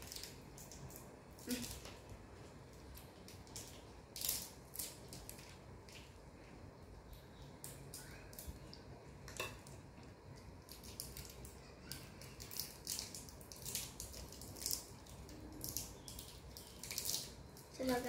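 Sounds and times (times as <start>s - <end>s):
wrapper crackling: 0.0s - 2.1s, 10.6s - 18.0s.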